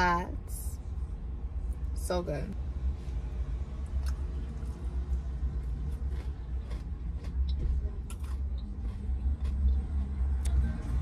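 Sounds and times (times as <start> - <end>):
chewing and lip-smacking: 3.8 - 11.0.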